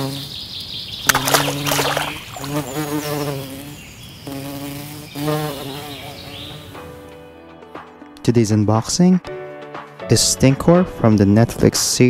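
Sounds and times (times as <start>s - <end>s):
cartoon bee buzzing: 0.0s - 0.4s, 1.0s - 6.9s
splashy burst: 1.0s - 2.7s.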